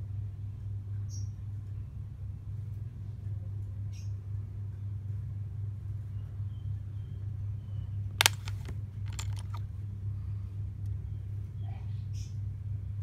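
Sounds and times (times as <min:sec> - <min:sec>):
metal rings clicking: 0:08.2 - 0:09.6.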